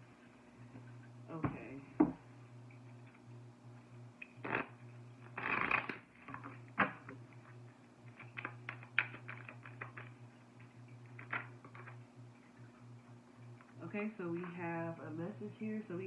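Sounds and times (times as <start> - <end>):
steady low hum: 0.0 - 16.0
cards shuffling: 5.4 - 6.5, 8.1 - 10.2.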